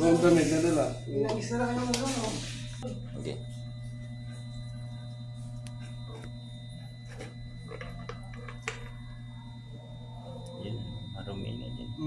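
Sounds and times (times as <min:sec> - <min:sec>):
high whining tones: 0:00.0 - 0:12.0
low machinery hum: 0:00.0 - 0:12.0
electrical wires clicking: 0:01.2 - 0:02.3.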